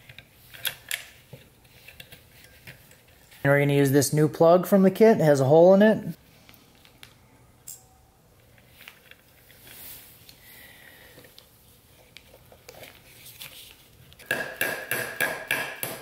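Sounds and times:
hammer tapping metal: 0:14.2 - 0:16.0.

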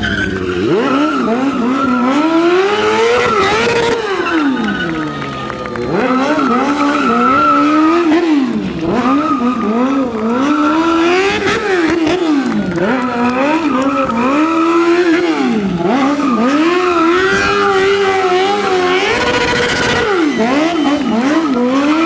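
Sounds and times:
motorcycle engine revving: 0:00.0 - 0:22.0
tyre skidding on asphalt: 0:00.0 - 0:22.0.

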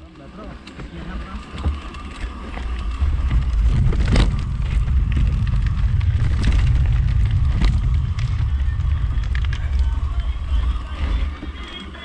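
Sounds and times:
bike rattling over bumps: 0:00.0 - 0:12.0
tyres rumbling on dirt: 0:00.0 - 0:12.0
wind buffeting microphone: 0:01.4 - 0:11.6.

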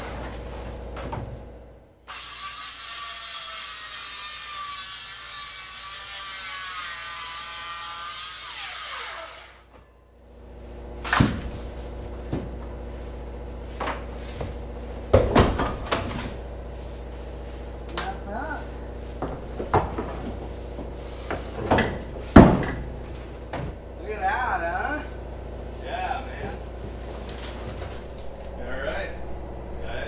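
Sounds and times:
reciprocating saw cutting: 0:02.0 - 0:09.7
knocks and thumps: 0:19.2 - 0:22.9.

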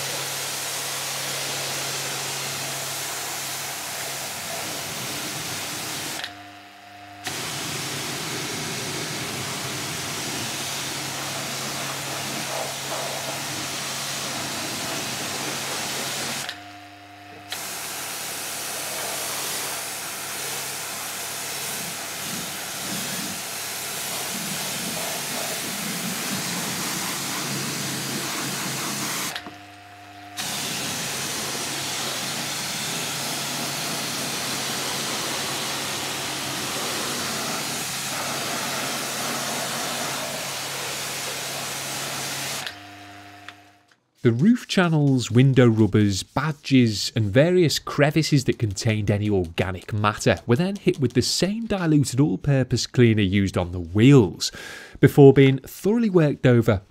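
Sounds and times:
pressure washer spray hissing: 0:00.0 - 0:06.3, 0:07.3 - 0:16.6, 0:17.5 - 0:29.5, 0:30.4 - 0:42.7
pump humming: 0:00.0 - 0:43.8.

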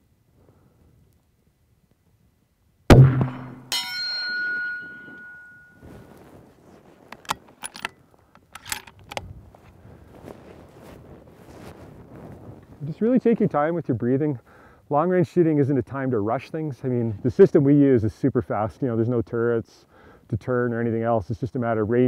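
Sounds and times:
rifle shot: 0:02.9 - 0:03.8
steel gong target ringing: 0:02.9 - 0:05.8
rifle bolt clicks: 0:07.2 - 0:09.3.

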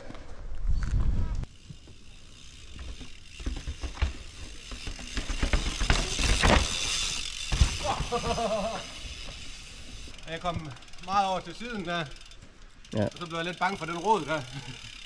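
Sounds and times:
bike chain and freehub rattling: 0:01.4 - 0:15.0
bike tyres knocking over rocks: 0:01.7 - 0:09.5.

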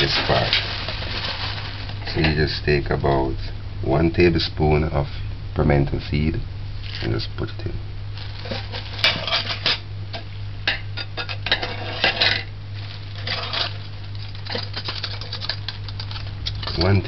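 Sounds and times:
steady low hum: 0:00.0 - 0:17.0
utensil stirring in metal pot: 0:13.0 - 0:17.0.

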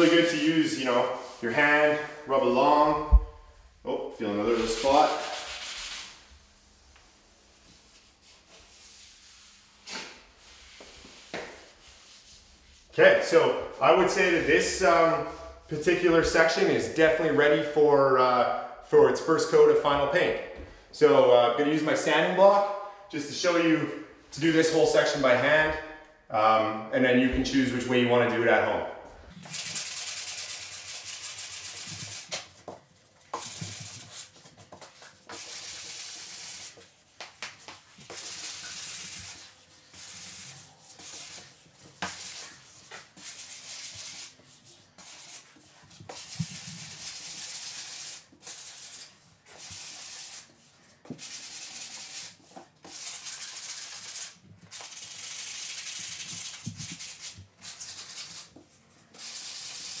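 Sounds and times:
sanding block rubbing wood: 0:00.0 - 0:02.2, 0:04.2 - 0:06.3, 0:29.4 - 0:32.4, 0:38.0 - 0:50.6, 0:51.2 - 0:58.5, 0:59.2 - 1:00.0.

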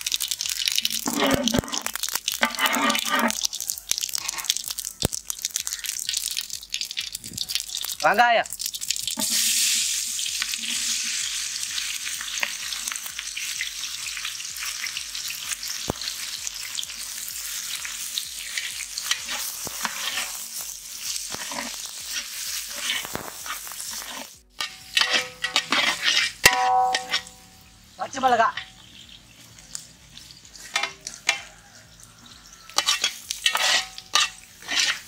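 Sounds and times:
onions sizzling in hot oil: 0:00.0 - 0:35.0
ladle scraping metal pot: 0:00.6 - 0:03.5, 0:04.1 - 0:04.7, 0:09.2 - 0:11.2, 0:18.4 - 0:20.5, 0:21.2 - 0:27.6, 0:30.2 - 0:31.6, 0:32.7 - 0:35.0.

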